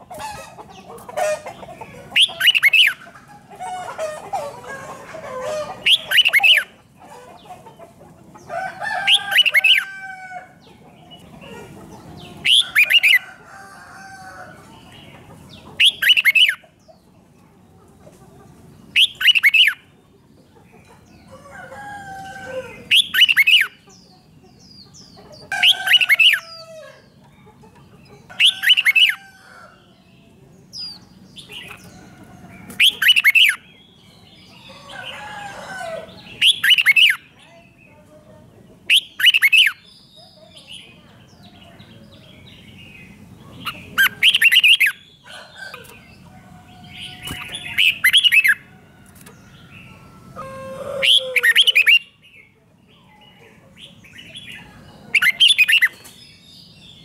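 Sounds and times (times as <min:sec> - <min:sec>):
bird singing sharp call phrases: 0:01.4 - 0:03.0, 0:05.5 - 0:06.8, 0:12.1 - 0:13.2, 0:14.8 - 0:17.0, 0:18.8 - 0:20.0, 0:22.8 - 0:27.5, 0:32.6 - 0:35.3, 0:35.9 - 0:37.9, 0:38.9 - 0:48.7, 0:49.3 - 0:57.0.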